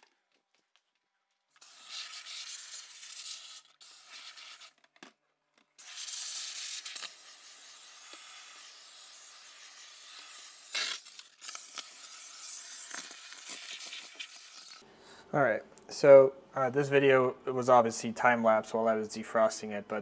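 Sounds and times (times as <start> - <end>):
handheld steamer hissing: 1.6 - 4.7, 5.8 - 14.8.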